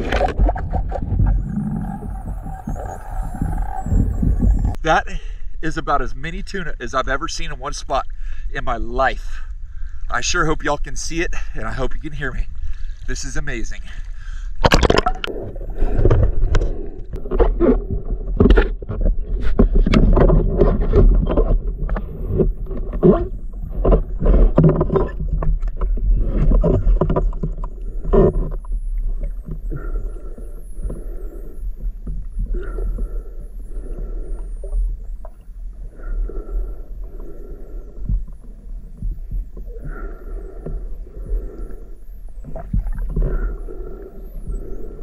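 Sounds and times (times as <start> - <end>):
low rumble: 0.0 - 5.6
water sloshing and bubbling: 0.0 - 45.0
sharp knocks and splashes: 14.6 - 15.3.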